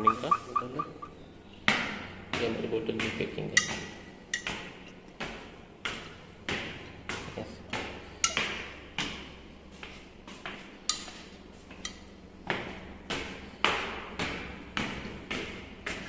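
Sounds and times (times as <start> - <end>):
footsteps on concrete stairs: 4.5 - 16.0.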